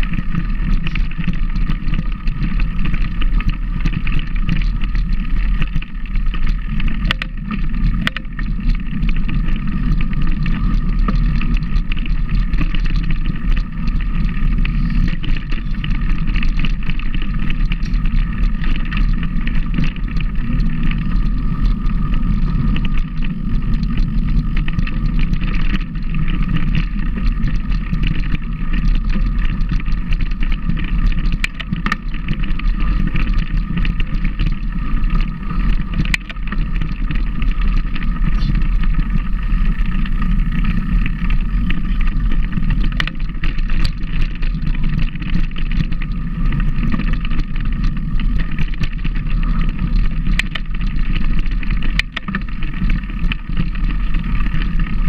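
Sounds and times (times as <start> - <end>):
vehicle running with low rumble: 0.0 - 55.0.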